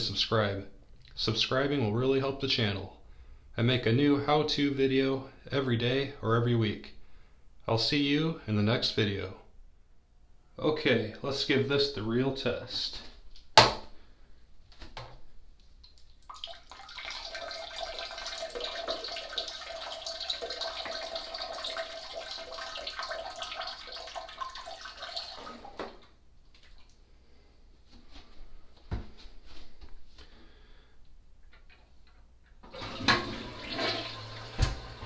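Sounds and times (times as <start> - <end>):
urine stream splashing in toilet: 15.8 - 26.9, 32.7 - 35.0.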